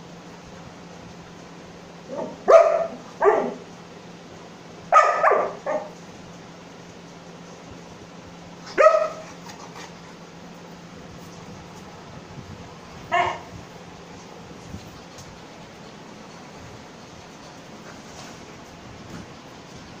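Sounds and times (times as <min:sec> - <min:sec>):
dog barking: 0:02.1 - 0:03.6, 0:04.9 - 0:06.0, 0:08.7 - 0:09.3, 0:13.1 - 0:13.5.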